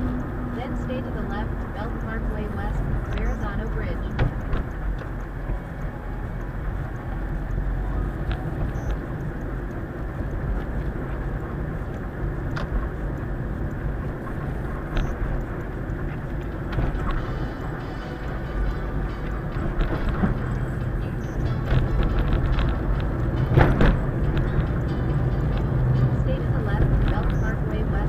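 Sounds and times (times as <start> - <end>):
car road and engine rumble: 0.0 - 28.0.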